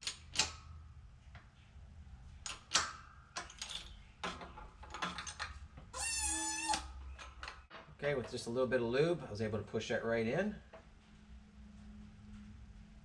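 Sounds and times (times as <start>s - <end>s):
high squeal of metal part: 5.9s - 7.0s.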